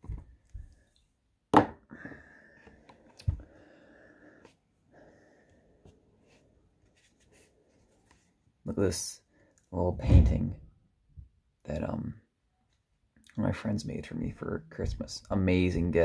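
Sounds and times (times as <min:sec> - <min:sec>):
faint scraping and rustling: 0:05.8 - 0:08.4.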